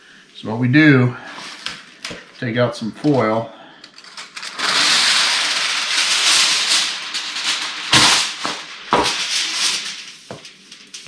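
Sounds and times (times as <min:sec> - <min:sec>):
aluminum foil crackling: 0:01.4 - 0:11.0
foil tearing: 0:03.9 - 0:11.0.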